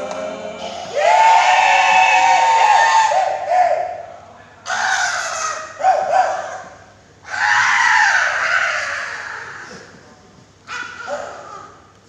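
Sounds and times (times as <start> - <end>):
group shouting a cheer: 0.0 - 4.1.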